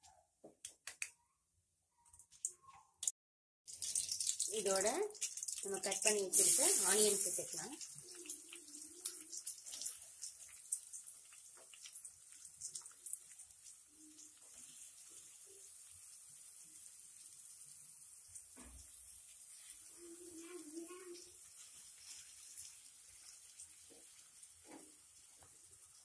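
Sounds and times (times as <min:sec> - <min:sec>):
onions sizzling in hot oil: 0:03.7 - 0:26.0
light crackles and ticks: 0:05.1 - 0:06.1, 0:07.8 - 0:14.6.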